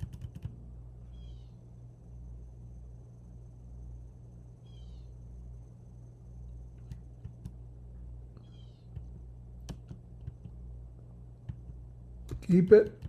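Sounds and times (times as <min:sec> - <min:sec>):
computer keys clicking: 0:00.0 - 0:00.6, 0:08.9 - 0:10.6, 0:11.4 - 0:13.0
steady low hum: 0:00.0 - 0:13.0.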